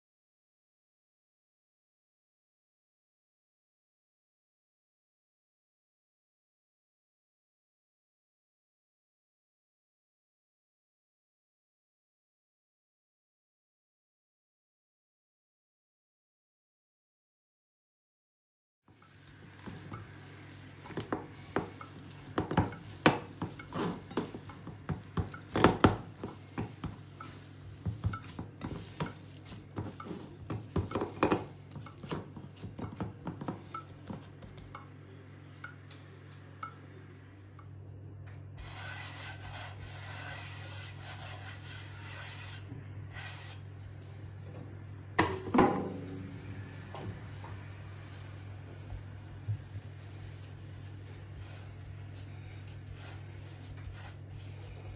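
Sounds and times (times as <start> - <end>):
rubbing flour on wooden board: 19.0 - 34.8, 38.6 - 43.6, 49.9 - 54.9
hand kneading dough in bowl: 19.0 - 37.3.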